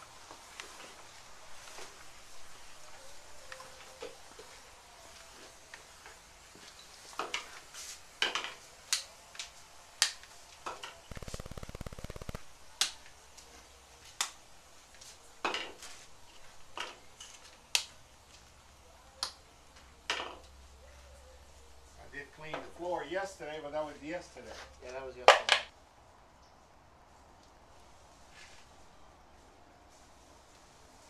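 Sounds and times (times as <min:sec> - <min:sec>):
sharp clicks and knocks: 0:11.1 - 0:12.4
buzzing rattle: 0:11.1 - 0:12.5.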